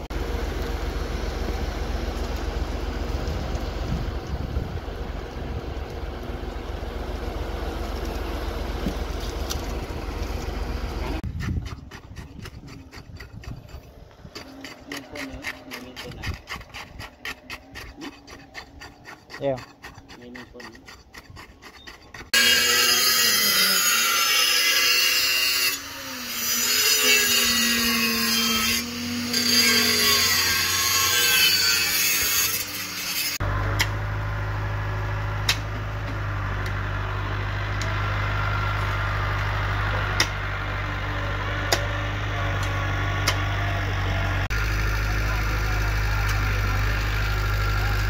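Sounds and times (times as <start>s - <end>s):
low engine hum: 0.0s - 16.4s, 33.4s - 48.0s
harsh rasping grinding noise: 1.2s - 48.0s
shovels striking soil: 11.3s - 22.4s, 35.4s - 35.8s.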